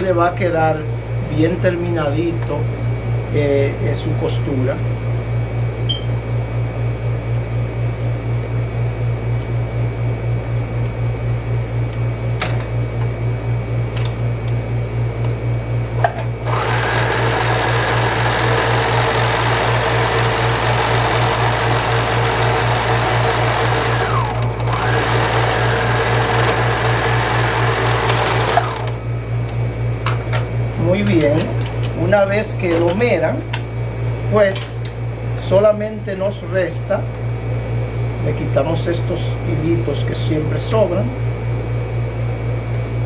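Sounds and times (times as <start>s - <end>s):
serger sewing machine running: 16.4s - 29.0s
pulsing low hum: 21.8s - 30.9s, 41.1s - 43.0s.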